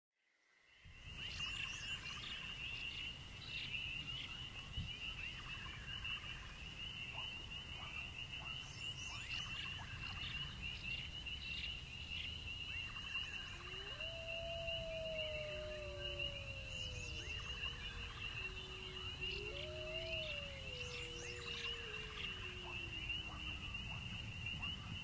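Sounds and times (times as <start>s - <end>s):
cricket trill: 12.5s - 25.0s
faint low rumble: 13.5s - 25.0s
night creature chirps: 13.6s - 23.6s.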